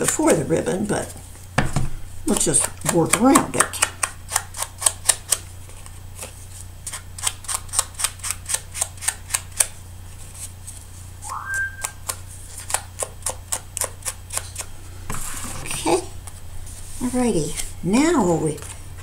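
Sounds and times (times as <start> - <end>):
short high tone: 11.2 - 12.1.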